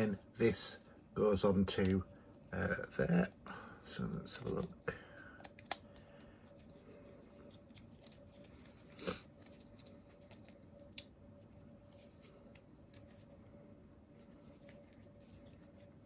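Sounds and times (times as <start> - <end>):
plastic camera parts rubbing: 6.4 - 13.4, 14.1 - 16.0.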